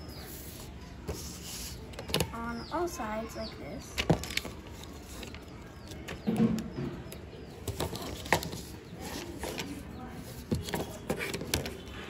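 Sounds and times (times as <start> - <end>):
paper rustling: 4.0 - 6.2, 7.6 - 11.9.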